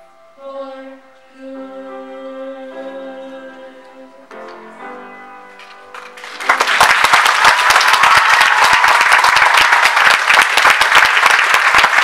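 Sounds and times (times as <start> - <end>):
audience applauding: 5.9 - 12.0.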